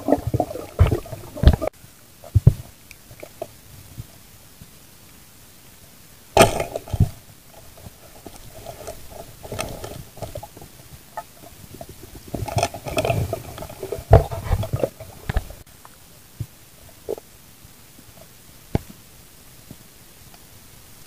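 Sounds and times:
muffled underwater knocking: 0:00.0 - 0:01.7.

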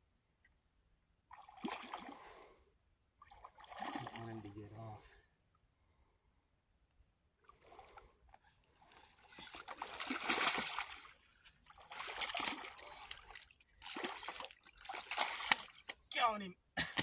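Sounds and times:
fish thrashing and splashing: 0:08.8 - 0:16.0.

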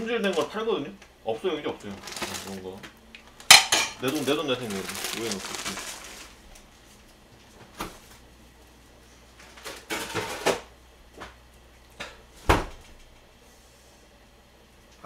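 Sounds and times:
kitchen things knocking and clattering: 0:03.5 - 0:04.1.

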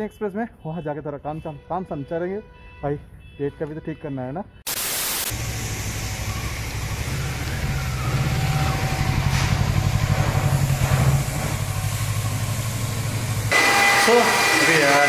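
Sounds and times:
motorcycle engine running: 0:05.4 - 0:13.5.

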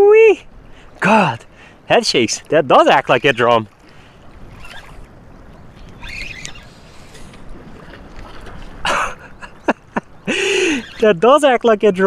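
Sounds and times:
water lapping at shore: 0:00.0 - 0:12.0
wind on microphone: 0:03.7 - 0:11.0.

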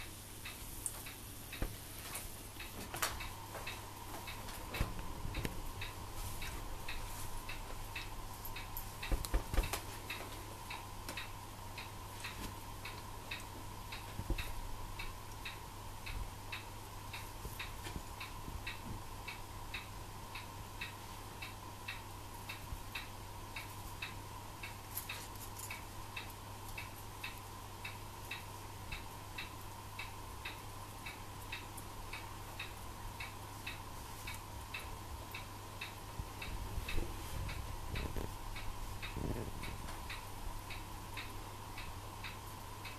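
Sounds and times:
low electrical hum: 0:00.0 - 0:42.9.

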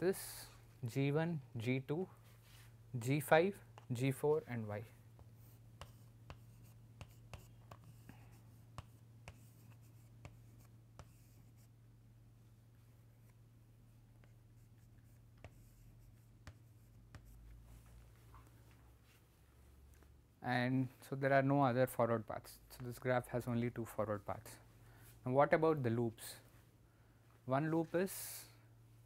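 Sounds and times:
chalk tapping and scratching: 0:05.1 - 0:11.7, 0:14.2 - 0:17.7.

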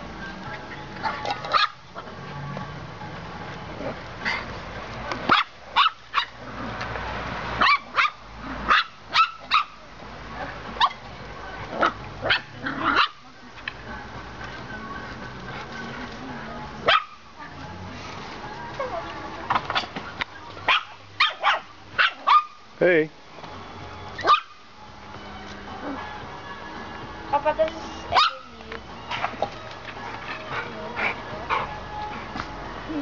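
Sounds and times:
puppies yapping: 0:00.9 - 0:02.1, 0:03.8 - 0:04.6, 0:05.3 - 0:06.5, 0:07.6 - 0:09.8, 0:10.4 - 0:11.1, 0:11.8 - 0:13.3, 0:20.6 - 0:22.6, 0:24.2 - 0:24.6, 0:28.1 - 0:31.8.

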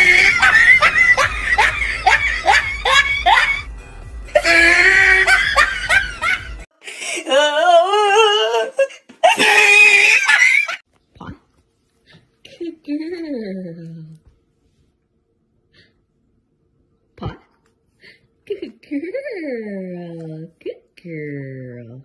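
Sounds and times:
person laughing hard: 0:00.0 - 0:03.6, 0:04.3 - 0:06.6, 0:09.2 - 0:10.8.

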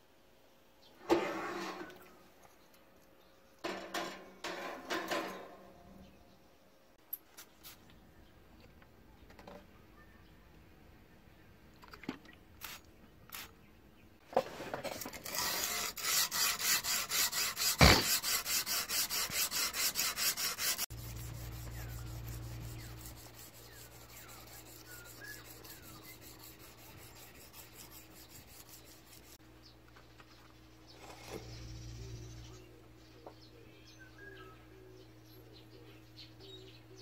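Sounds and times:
faint bird chirps: 0:09.0 - 0:10.6
hand sanding strokes on metal: 0:15.1 - 0:29.4
steady low hum: 0:20.8 - 0:37.0.

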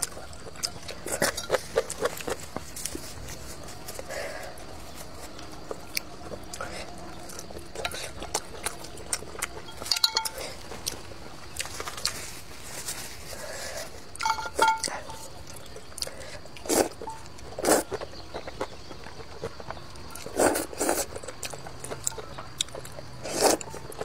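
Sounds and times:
soft chewing: 0:00.0 - 0:24.0
chopsticks clinking on metal bowl: 0:00.7 - 0:02.4, 0:09.5 - 0:10.6, 0:14.2 - 0:15.4
slurping noodles: 0:20.2 - 0:21.2, 0:23.2 - 0:23.7.

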